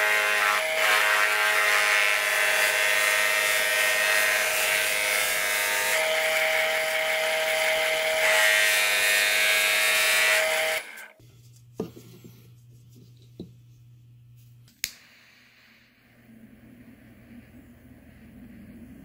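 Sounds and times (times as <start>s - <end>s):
faint low hum: 11.2s - 19.0s.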